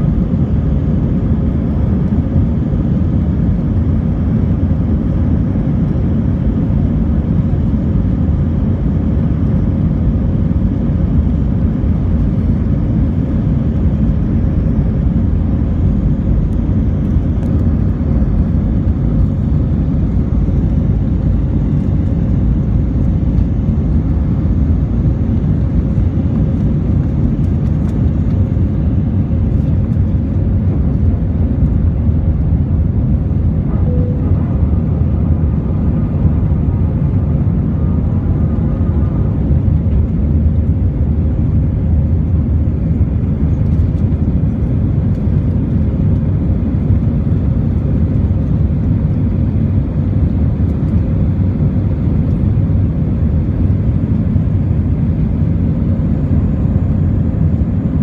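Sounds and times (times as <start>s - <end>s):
faint steady hum: 0.0s - 58.0s
jet engines roaring: 0.0s - 58.0s
takeoff roll rumble: 26.6s - 41.6s.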